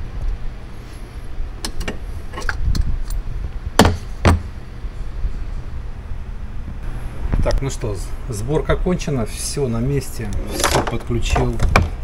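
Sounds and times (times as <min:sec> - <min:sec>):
steady low rumble: 0:00.0 - 0:11.3
loud thumps: 0:03.8 - 0:04.5.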